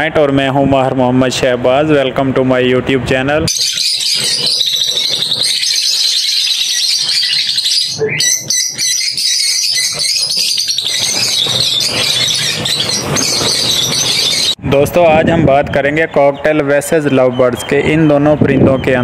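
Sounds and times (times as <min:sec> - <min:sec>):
flock of birds chattering: 0:03.5 - 0:14.6.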